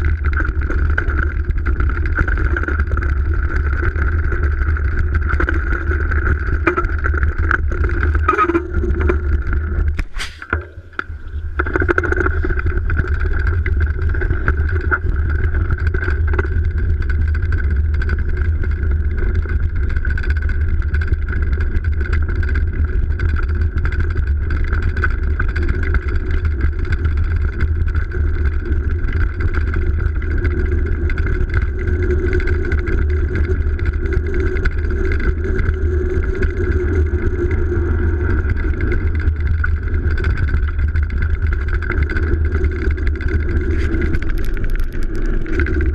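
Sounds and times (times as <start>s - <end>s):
mountain bike rolling over snow: 0.0s - 45.9s.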